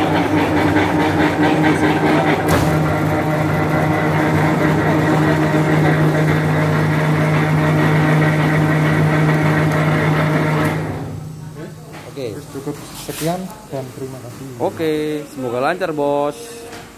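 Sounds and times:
rebar bender motor humming: 0.0s - 11.7s.

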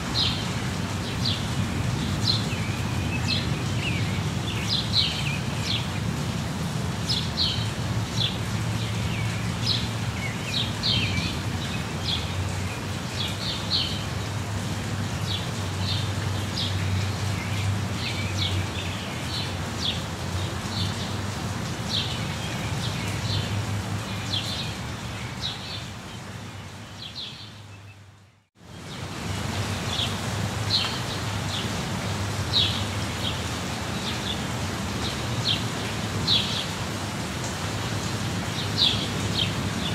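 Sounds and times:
steady rain: 0.0s - 39.9s
birds chirping: 0.2s - 6.2s, 15.0s - 39.9s.

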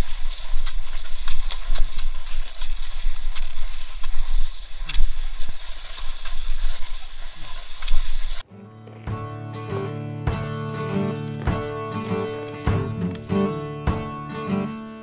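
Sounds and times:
skis scraping on icy track: 0.0s - 8.4s.

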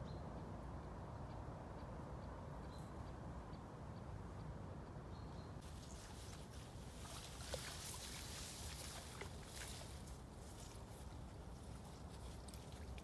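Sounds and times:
low rumble of wind: 0.0s - 13.0s
dog rustling through grass: 5.6s - 13.0s
small clicks and splashes: 11.6s - 13.0s.

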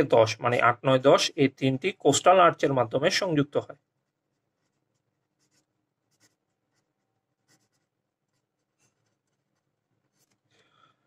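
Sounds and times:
pen scratching on paper: 4.0s - 10.5s.

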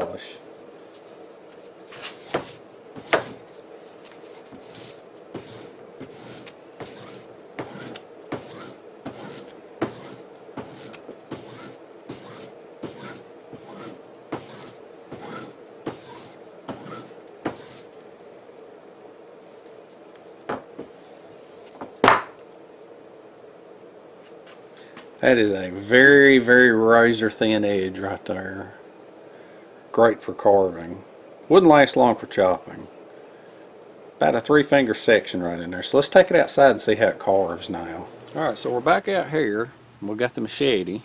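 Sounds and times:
steady low hum: 0.0s - 41.0s
strop brushing blade edge: 4.6s - 17.9s.

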